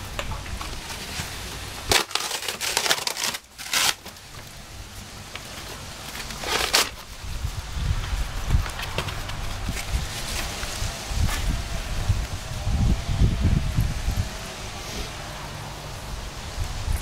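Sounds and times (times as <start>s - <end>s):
cardboard tearing and crushing: 0.5s - 4.6s, 5.3s - 7.3s, 8.0s - 11.6s.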